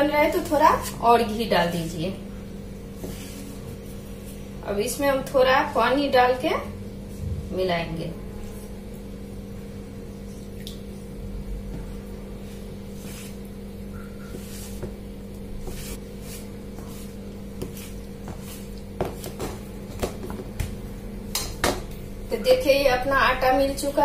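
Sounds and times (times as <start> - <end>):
steady low hum: 0.0 - 24.0
hands squishing dough: 15.6 - 20.9.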